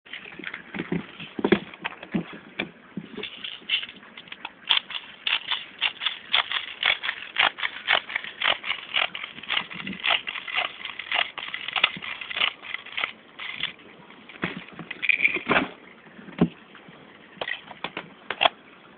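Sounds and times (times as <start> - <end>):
rapid plastic clicks: 3.3 - 13.8.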